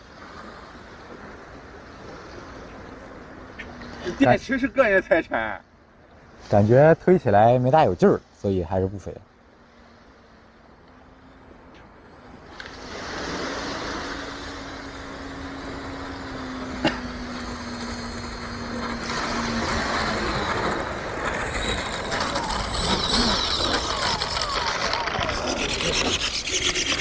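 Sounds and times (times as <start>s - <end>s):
electric ducted fan rushing: 10.3s - 27.0s.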